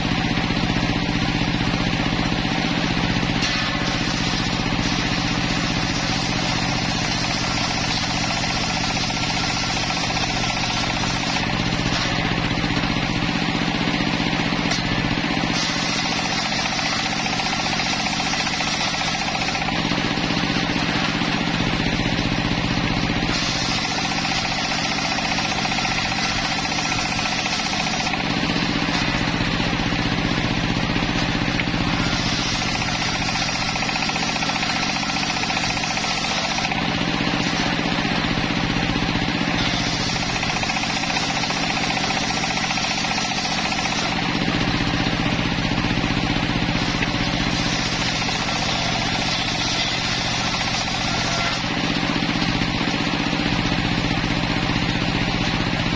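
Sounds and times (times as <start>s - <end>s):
sawmill engine running: 0.0s - 55.9s
saw blade hissing through wood: 15.4s - 19.8s, 23.3s - 28.2s, 31.9s - 36.7s, 47.2s - 51.7s.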